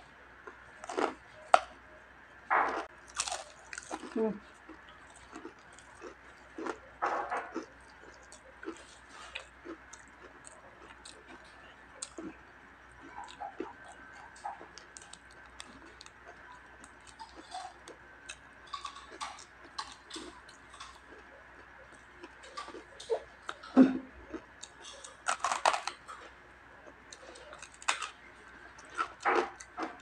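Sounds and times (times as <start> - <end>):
chewing crispy fried skin: 0.4 - 1.8, 2.6 - 30.0.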